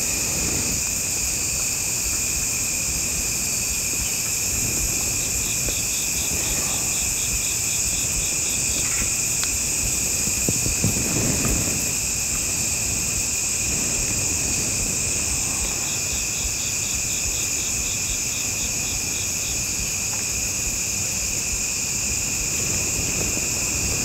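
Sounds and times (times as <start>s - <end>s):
shrill insect chorus: 0.0s - 24.0s.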